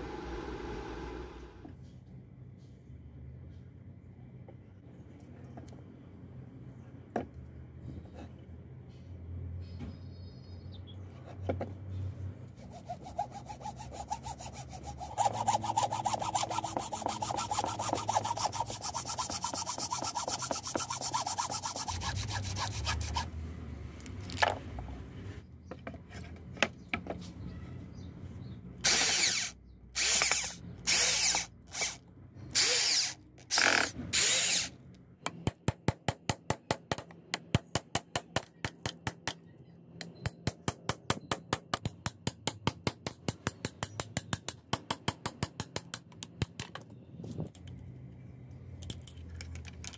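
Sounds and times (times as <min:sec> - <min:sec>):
hacksaw rasping: 0:12.6 - 0:23.3, 0:28.9 - 0:32.0
cutting tool whining: 0:13.1 - 0:23.2, 0:28.8 - 0:34.7.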